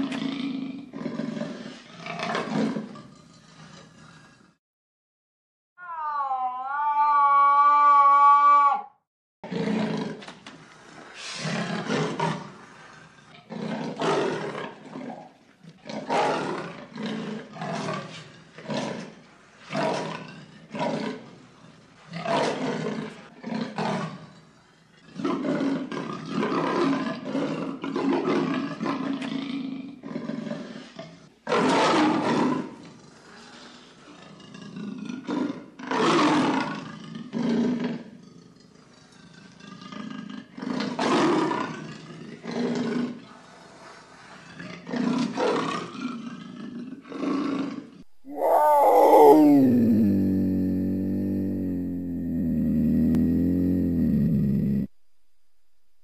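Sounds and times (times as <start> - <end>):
wavering pitched call: 48.3 - 54.9.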